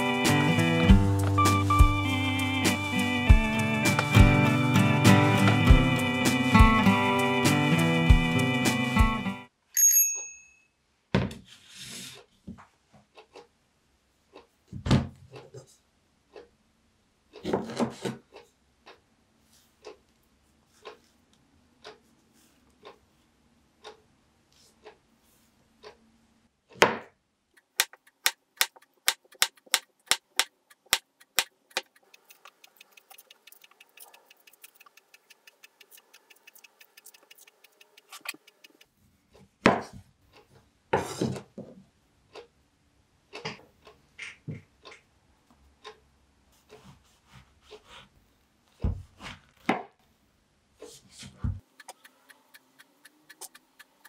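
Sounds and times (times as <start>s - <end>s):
faint rapid ticking: 27.6s - 39.0s, 51.6s - 54.0s.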